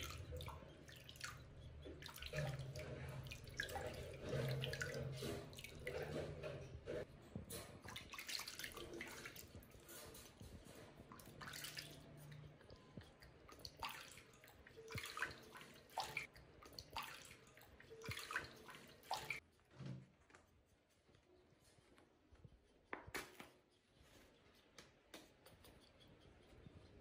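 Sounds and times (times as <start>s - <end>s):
water splashing and dripping: 0.0s - 19.4s.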